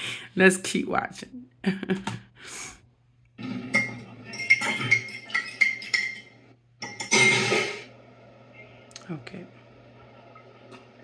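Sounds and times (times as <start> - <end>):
fork clinking against ceramic mug: 3.8 - 7.6.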